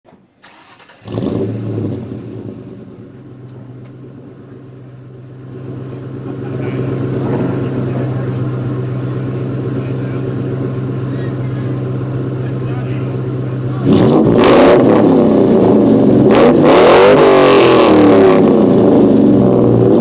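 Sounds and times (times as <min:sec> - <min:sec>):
car engine starting and idling: 0:00.1 - 0:20.0.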